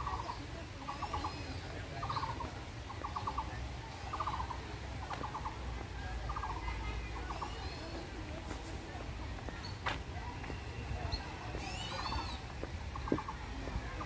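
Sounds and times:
faint bird chirps: 0.0 - 4.6, 10.6 - 13.4.

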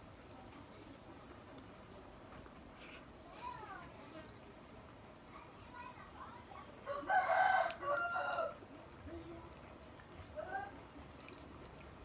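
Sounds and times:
rooster crowing: 6.9 - 8.6.

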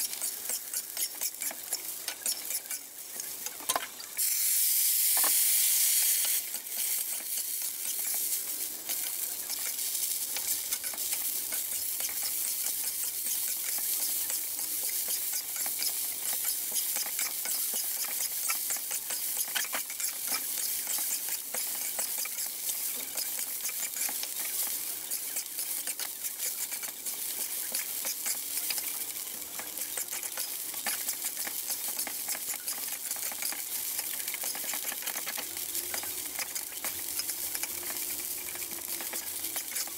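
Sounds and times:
metal spatula scraping a wok: 0.0 - 4.1, 6.3 - 39.9
food sizzling in a wok: 0.0 - 39.9.

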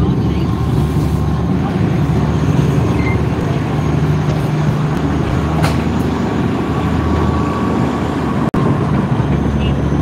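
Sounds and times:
train low rumble: 0.0 - 10.0.

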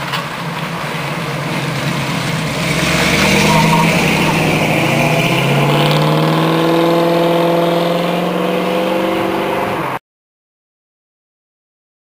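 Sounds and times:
car engine accelerating: 0.4 - 10.0.

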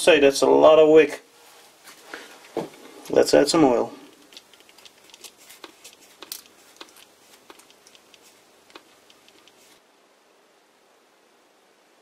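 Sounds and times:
faint irregular clicks: 4.0 - 9.8.

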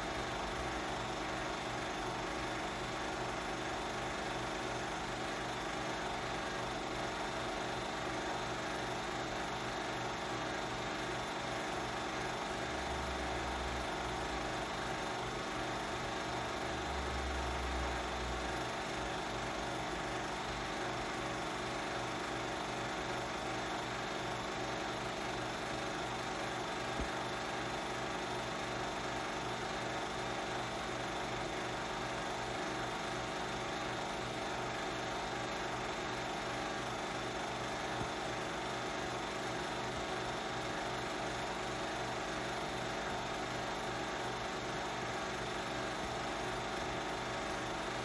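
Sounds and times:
film projector whirring: 0.0 - 48.0.

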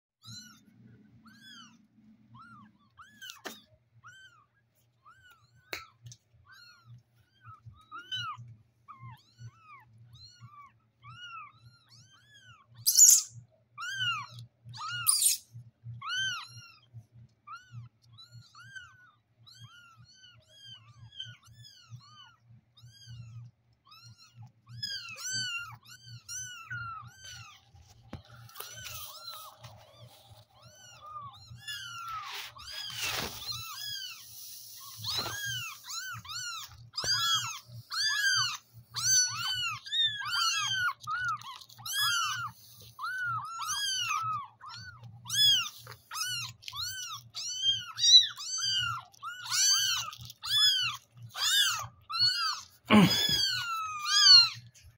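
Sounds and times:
kittens mewing: 17.5 - 54.7.

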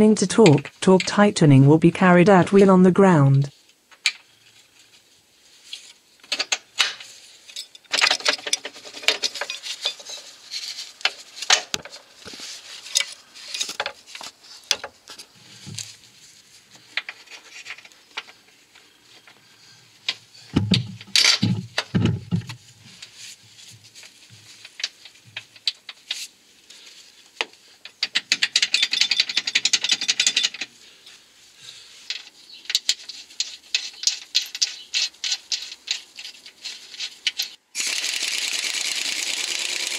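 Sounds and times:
hand ratchet clicking: 37.3 - 39.9.

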